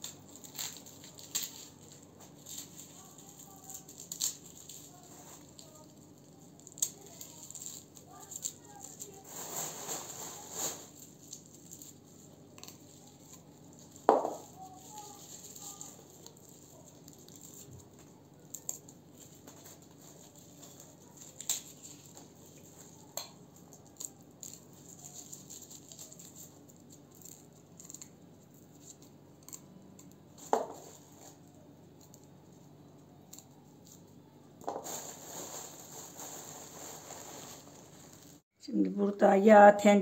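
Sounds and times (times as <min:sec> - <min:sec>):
loud rustling: 0:34.7 - 0:38.4.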